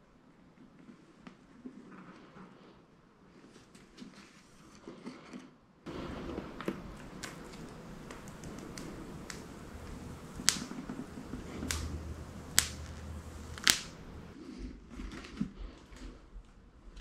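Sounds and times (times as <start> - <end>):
plastic film peeling and crackling: 5.9 - 14.4.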